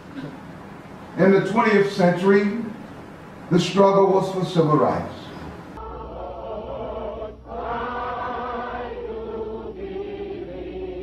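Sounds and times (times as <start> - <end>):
low hum: 0.0 - 11.0
choir singing long notes: 5.8 - 11.0.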